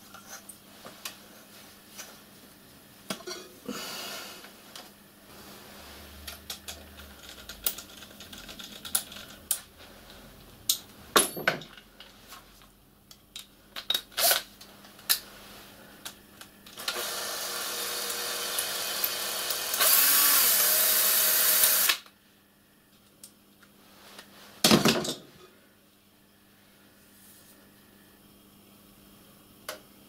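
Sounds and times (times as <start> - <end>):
cordless drill driving screw: 16.8 - 22.0.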